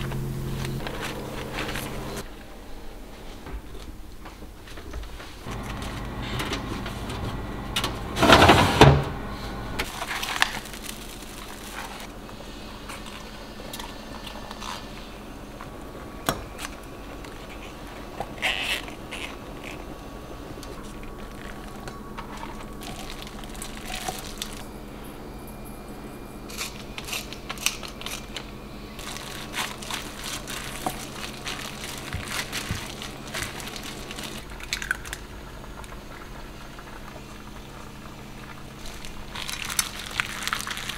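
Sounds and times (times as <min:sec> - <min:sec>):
handling noise: 0:00.0 - 0:02.2, 0:03.5 - 0:12.1
low hum: 0:00.0 - 0:04.3, 0:05.4 - 0:39.9.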